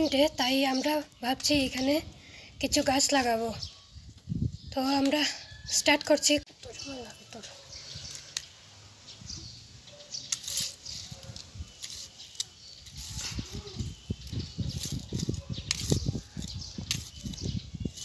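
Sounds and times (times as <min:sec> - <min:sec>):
metal blade scraping stony soil: 0:06.9 - 0:08.6, 0:10.1 - 0:18.0.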